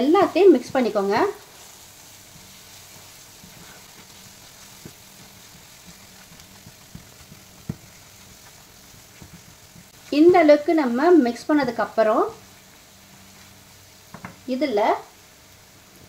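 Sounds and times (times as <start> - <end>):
food sizzling in oil: 0.0 - 16.0
spatula scraping and tapping pan: 2.2 - 10.3, 14.1 - 14.4.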